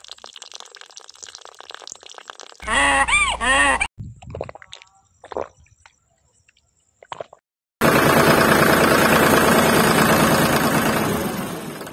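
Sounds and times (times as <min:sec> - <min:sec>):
faint clicks and plops: 0:00.0 - 0:02.6, 0:04.2 - 0:07.4
small water pump buzzing: 0:07.8 - 0:11.9.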